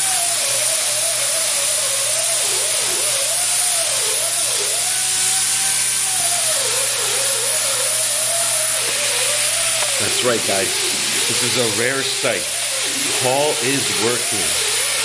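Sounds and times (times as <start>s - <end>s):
compressed air hissing from nozzle: 8.8s - 15.0s.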